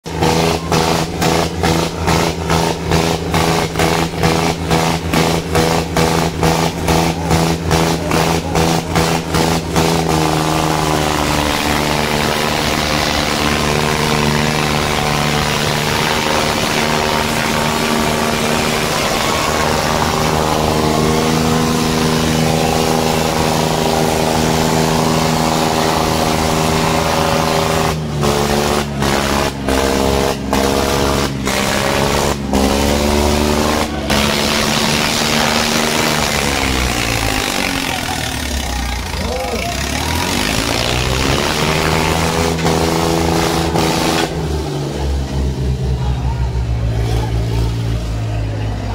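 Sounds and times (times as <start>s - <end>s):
tractor engines droning: 0.0s - 48.9s.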